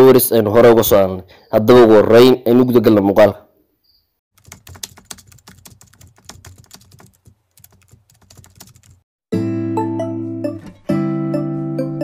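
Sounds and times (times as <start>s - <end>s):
laptop keyboard typing: 4.4s - 9.1s.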